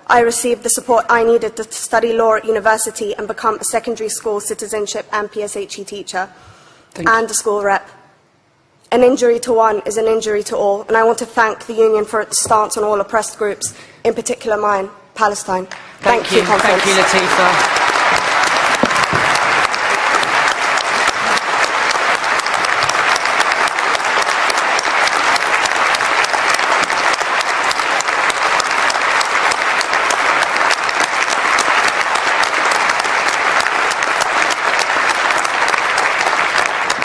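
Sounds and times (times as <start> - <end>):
audience applauding: 16.0 - 37.0.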